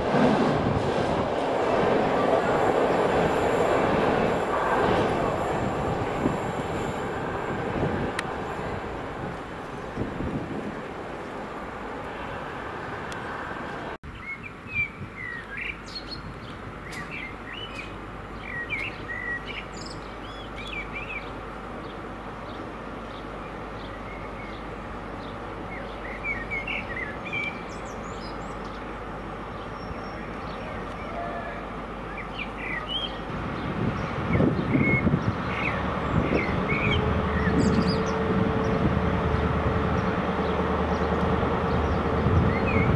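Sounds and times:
freight train rolling past: 0.0 - 14.0, 31.0 - 42.9.

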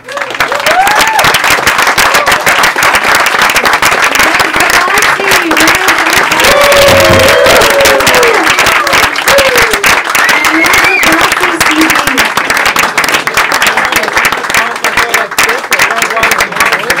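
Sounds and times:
people cheering and whooping: 0.0 - 2.7, 6.3 - 11.2
audience applause: 0.0 - 17.0.

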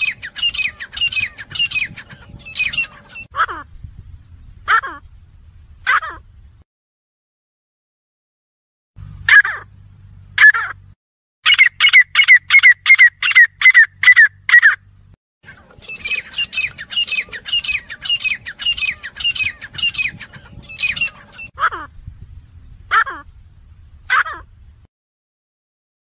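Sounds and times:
francolins calling: 0.0 - 3.7, 11.4 - 14.9, 15.5 - 24.6.

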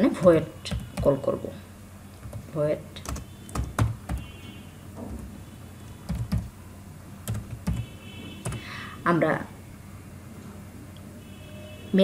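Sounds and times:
computer keyboard keystrokes: 0.7 - 1.2, 2.2 - 4.3, 6.0 - 6.5, 7.3 - 8.6.

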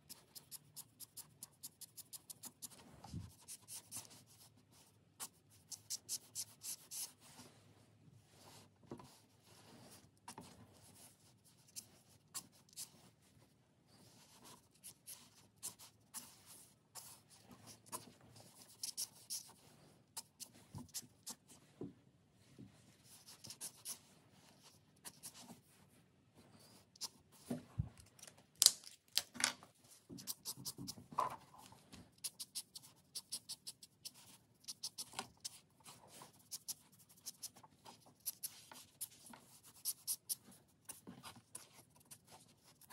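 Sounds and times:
marker scratching on paper: 0.0 - 7.4, 8.4 - 13.1, 14.0 - 21.6, 23.0 - 25.7, 30.2 - 31.0, 32.1 - 42.9.

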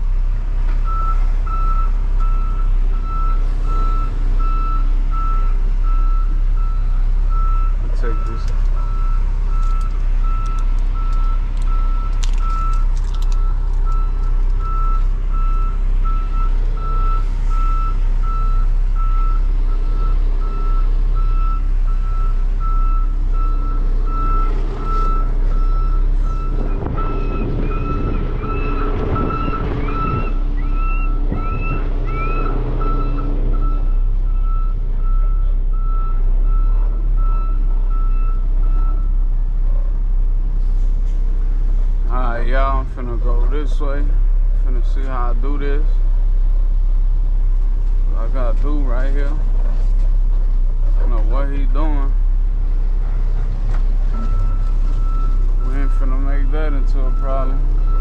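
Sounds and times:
diesel engine running: 0.0 - 58.0
truck backup alarm beeping: 0.8 - 39.2, 54.0 - 58.0.

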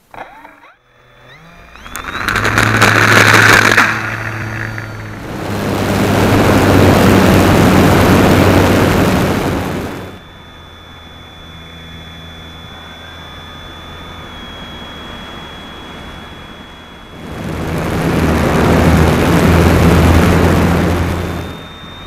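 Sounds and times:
model airplane motor and propeller: 0.0 - 22.0
airflow rush: 1.8 - 10.2, 15.2 - 22.0.

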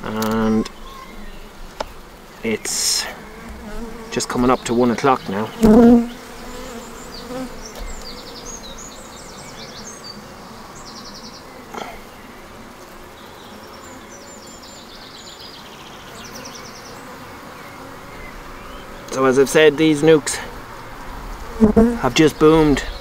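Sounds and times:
bees buzzing: 0.0 - 23.0
hive tool knock: 5.6 - 6.0.

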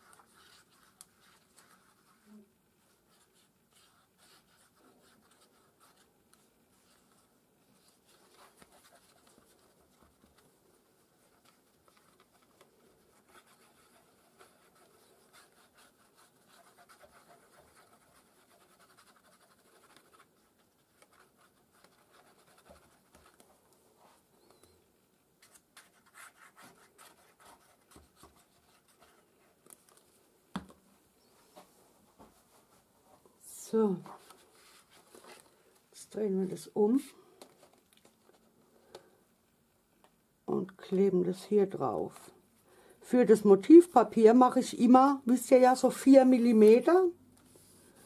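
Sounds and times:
hand rubbing glue on card: 11.1 - 24.8.

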